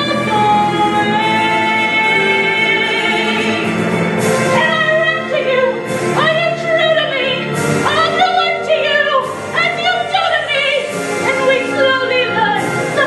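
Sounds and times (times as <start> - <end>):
high voice singing opera: 0.0 - 3.7
orchestral accompaniment: 0.0 - 13.0.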